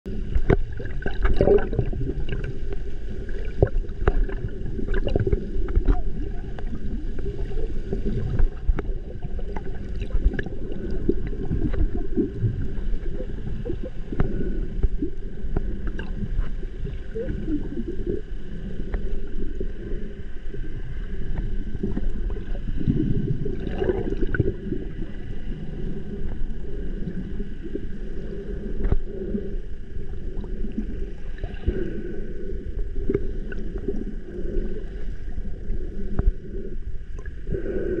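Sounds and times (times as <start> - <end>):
muffled underwater rumble: 0.0 - 38.0
small underwater clicks: 0.2 - 19.4, 21.2 - 23.0, 28.7 - 29.4, 32.8 - 35.0.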